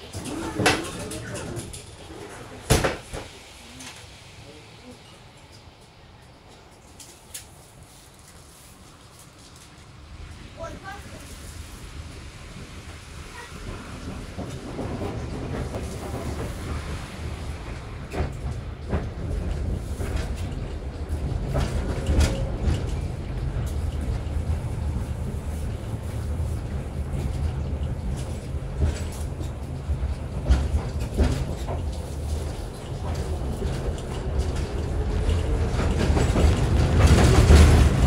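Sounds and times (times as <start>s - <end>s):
wheels clacking over track joints: 0.0s - 4.1s, 13.3s - 38.0s
tram rumbling on rails: 0.0s - 38.0s.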